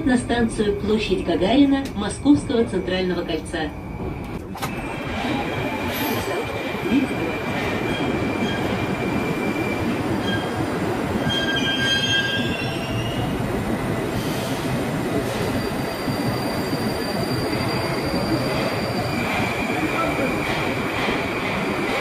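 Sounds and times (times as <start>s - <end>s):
high-pitched wheel squeals: 11.2s - 13.2s.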